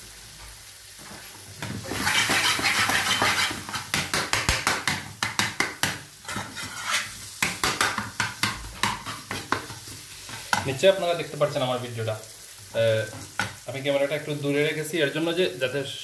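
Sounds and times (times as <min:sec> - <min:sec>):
food sizzling in a pan: 0:00.0 - 0:16.0
spatula scraping a pan: 0:01.8 - 0:04.6, 0:06.2 - 0:10.7.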